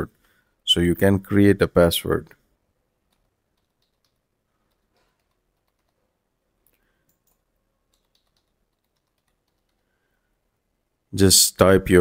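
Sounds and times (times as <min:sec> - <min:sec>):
faint keyboard typing: 0:03.0 - 0:10.3.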